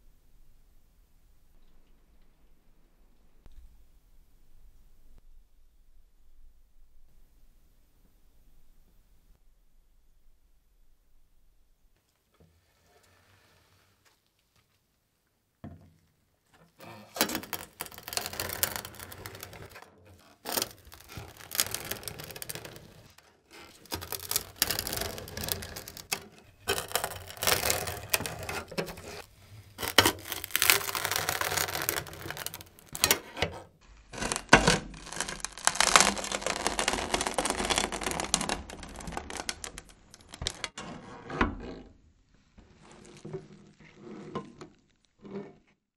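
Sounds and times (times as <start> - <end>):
bread crust crunching under blade: 17.4 - 33.3, 33.9 - 40.6.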